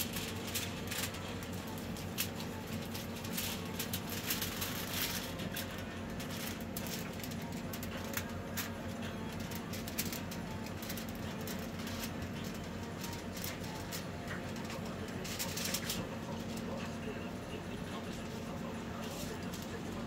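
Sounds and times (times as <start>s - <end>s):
aluminium foil crinkling: 0.0s - 20.0s
steady low hum: 0.0s - 20.0s.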